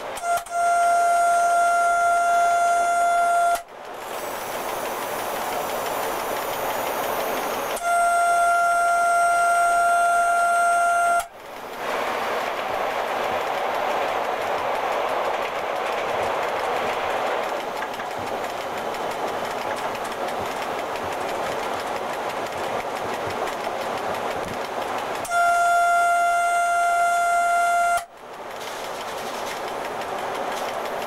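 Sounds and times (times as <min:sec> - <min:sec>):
wheels rushing on track: 0:01.2 - 0:31.0
steady warning tone: 0:05.8 - 0:11.3.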